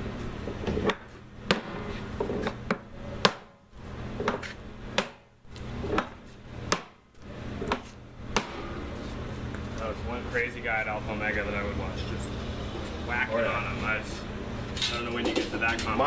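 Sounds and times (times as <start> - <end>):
hammer striking hoop driver: 0.8 - 1.8, 2.4 - 3.6, 4.2 - 5.3, 5.9 - 7.0, 7.6 - 8.8.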